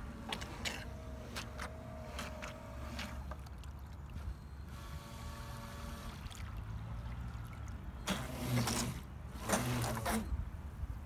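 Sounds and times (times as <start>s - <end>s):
water churning: 0.0s - 10.3s
electric boat motor whine: 4.6s - 6.3s.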